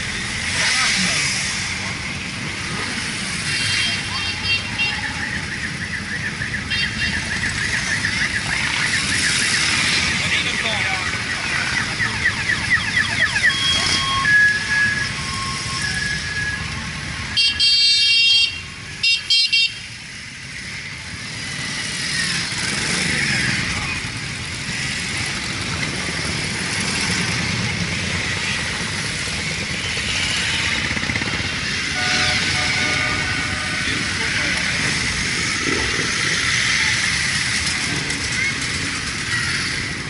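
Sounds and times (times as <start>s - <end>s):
motorcycles riding past revving: 20.1s - 40.0s
horn blasts: 31.9s - 34.2s.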